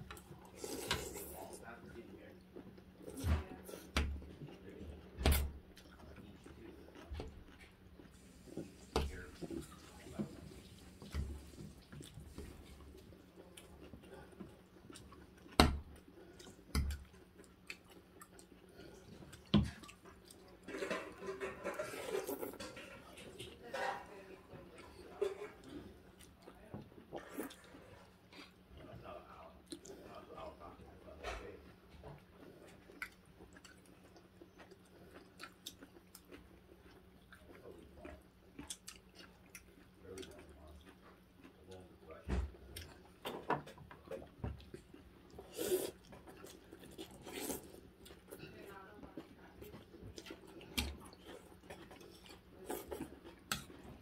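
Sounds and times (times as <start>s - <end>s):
soft chewing: 0.0s - 54.0s
cutlery scraping ceramic bowls: 20.6s - 24.1s.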